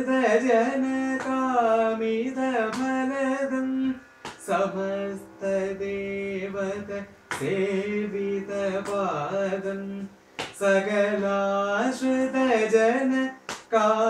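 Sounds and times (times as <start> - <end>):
man singing: 0.0 - 14.0
hand claps marking beat: 1.2 - 1.5, 2.7 - 3.0, 4.2 - 4.6, 7.3 - 7.6, 10.4 - 10.7, 13.5 - 13.8.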